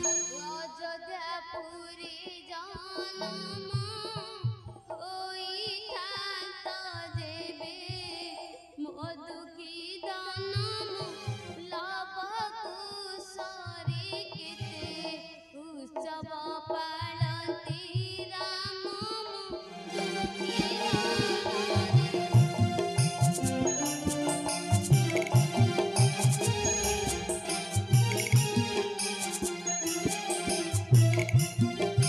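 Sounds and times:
instrumental accompaniment: 0.0s - 1.0s, 19.5s - 32.0s
person singing ornamented melody: 0.0s - 1.0s, 19.9s - 32.0s.

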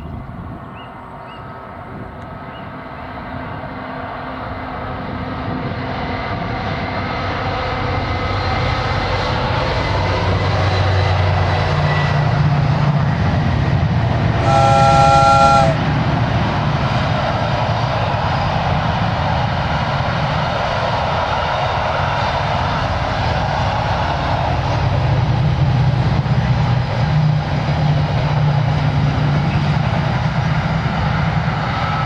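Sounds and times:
train engine and wheel rumble: 0.0s - 32.0s
locomotive horn blast: 14.4s - 15.9s.

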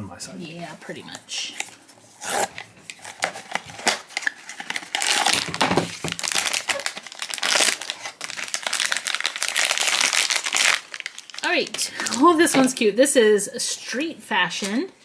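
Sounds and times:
foil bag crinkling: 2.5s - 12.8s.

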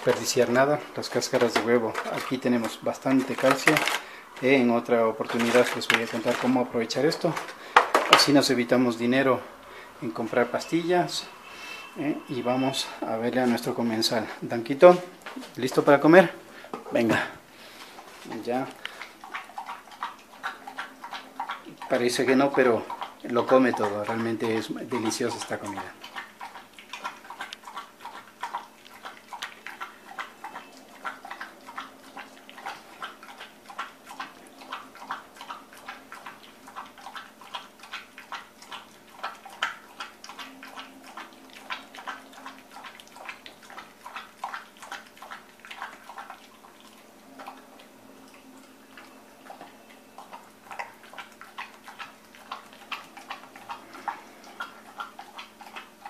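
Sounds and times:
dog smacking and lapping food: 0.0s - 11.5s, 12.3s - 56.0s.

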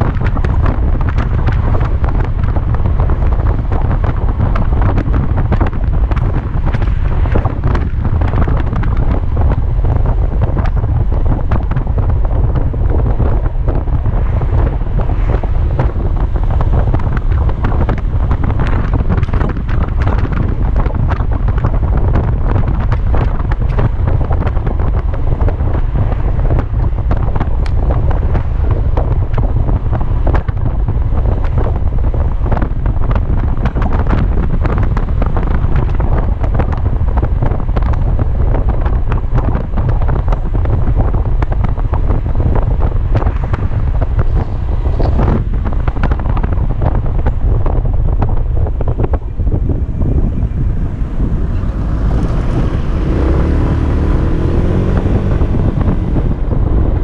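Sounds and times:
road noise: 0.0s - 57.0s
wind buffeting microphone: 0.0s - 57.0s
scooter engine: 49.8s - 56.4s.

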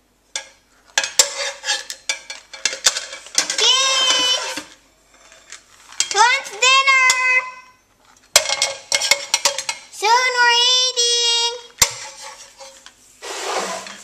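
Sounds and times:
utensils knocking on frying pan: 0.4s - 4.5s, 8.4s - 9.9s
girl singing words: 3.5s - 4.7s, 6.1s - 7.8s, 10.0s - 11.8s.

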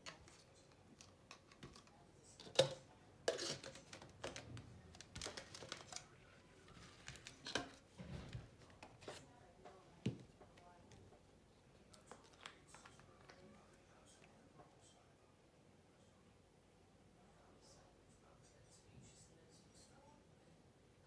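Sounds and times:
clicks taps and rustles: 0.0s - 13.5s.

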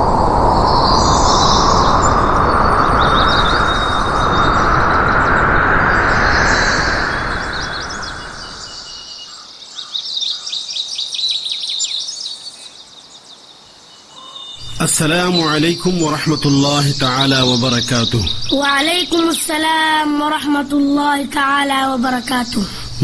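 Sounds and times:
loud rushing noise: 0.0s - 9.1s
birds chirping: 0.0s - 23.0s.

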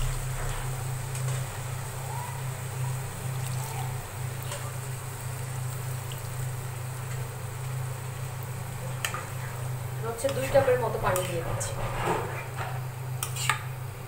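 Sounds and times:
low hum: 0.0s - 2.1s
water hissing in hot pan: 0.0s - 11.4s.

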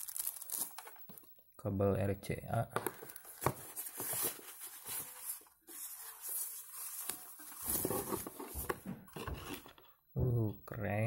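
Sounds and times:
plastic bag rustling and crinkling: 0.0s - 1.3s, 3.1s - 9.8s.

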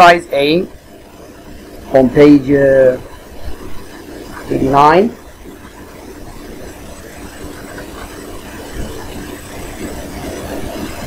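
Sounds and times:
machine room hum: 0.0s - 11.0s
person speaking: 4.5s - 5.2s.

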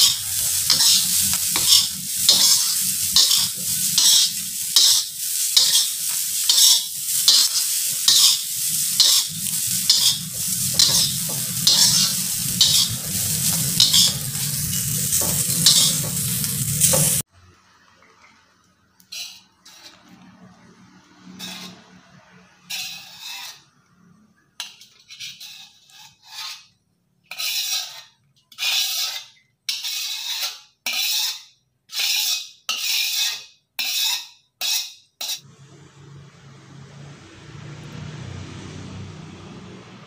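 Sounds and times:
steady rushing noise: 0.0s - 17.2s
metal spatula scraping wok: 0.0s - 17.3s, 19.0s - 35.6s
low hum: 35.5s - 40.0s.

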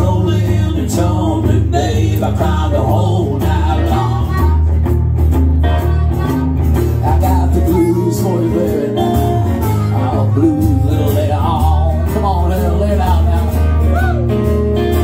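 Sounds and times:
acoustic guitar: 0.0s - 15.0s
electric guitar: 0.0s - 15.0s
harmonica wailing: 5.9s - 11.9s.

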